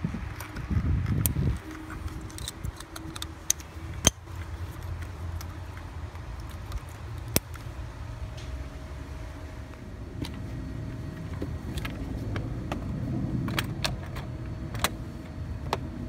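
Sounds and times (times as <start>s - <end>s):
steady low rumble: 0.0s - 16.0s
plastic connectors clicking and rattling: 0.3s - 7.7s.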